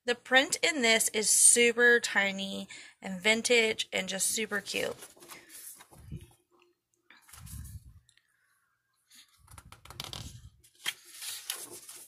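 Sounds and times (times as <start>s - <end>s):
paper rustling: 4.7s - 6.3s, 7.2s - 7.8s, 9.1s - 12.0s.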